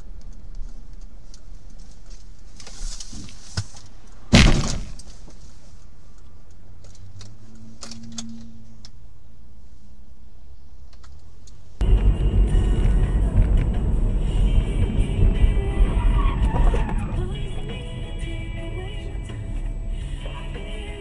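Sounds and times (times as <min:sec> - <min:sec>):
car hum on the road: 0:00.0 - 0:21.0
car crash impact: 0:04.3 - 0:05.1.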